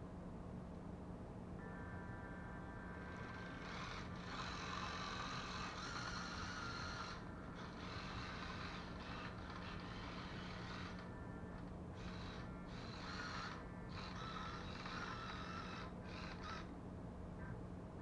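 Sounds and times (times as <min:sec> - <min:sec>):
robot gear motors whirring: 0:03.2 - 0:11.1, 0:12.0 - 0:16.7.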